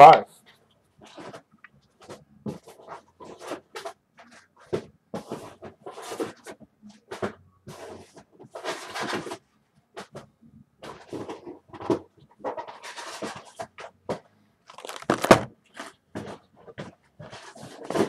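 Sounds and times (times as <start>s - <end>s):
shrink-wrapped box rustling: 14.6s - 16.0s.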